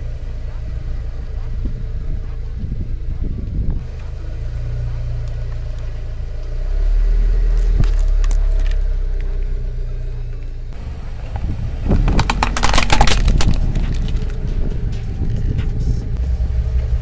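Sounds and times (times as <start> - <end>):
car engine running: 0.0 - 17.0
plastic toy cracking under wheel: 11.9 - 14.4.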